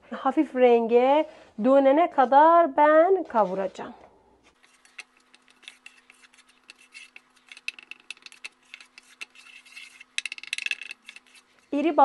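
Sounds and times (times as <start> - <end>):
wooden spatula scraping flour in pan: 4.6 - 10.2, 10.9 - 12.0.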